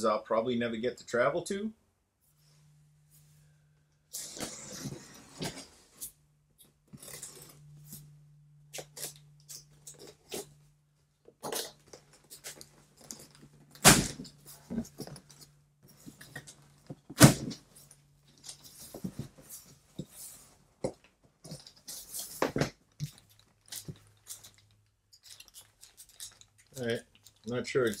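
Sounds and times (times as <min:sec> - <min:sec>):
loud thunks: 0:13.8 - 0:14.3.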